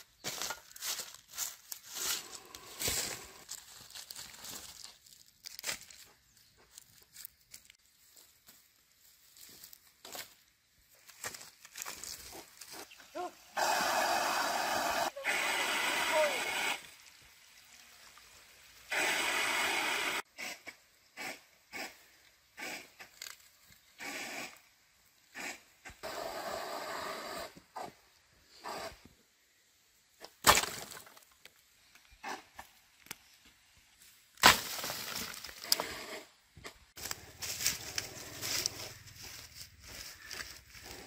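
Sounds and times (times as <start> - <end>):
rustling hiss: 11.6 - 29.8.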